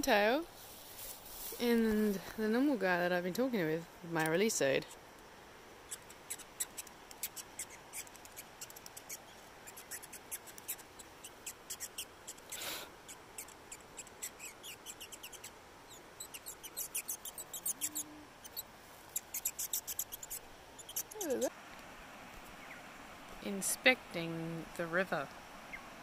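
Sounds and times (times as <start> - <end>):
bird chipping and cheeping: 5.9 - 12.4, 13.4 - 18.6, 19.2 - 21.5.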